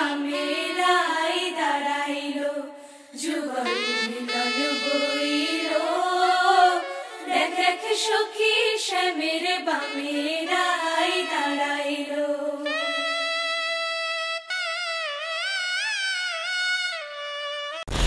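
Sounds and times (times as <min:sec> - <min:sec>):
voices singing a chant: 0:00.0 - 0:13.3
held instrument note: 0:03.6 - 0:07.8.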